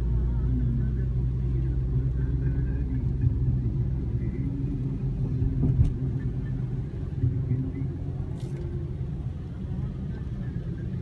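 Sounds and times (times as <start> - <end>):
car engine and tyres on wet road: 0.0 - 11.0.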